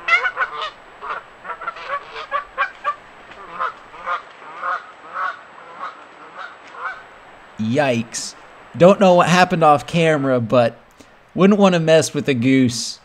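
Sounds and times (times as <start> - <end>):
geese honking: 0.0 - 7.1.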